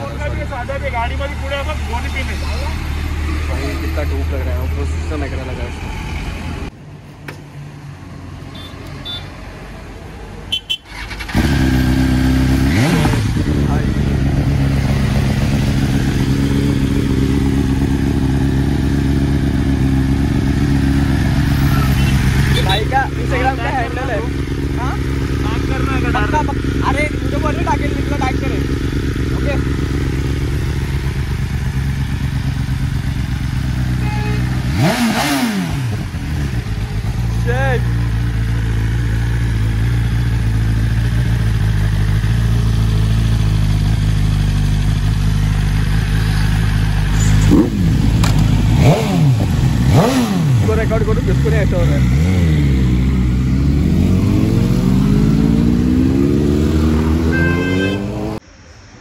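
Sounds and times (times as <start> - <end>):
motorcycle engine starting and idling: 10.6 - 57.8
motorcycle engine revving: 10.6 - 58.4.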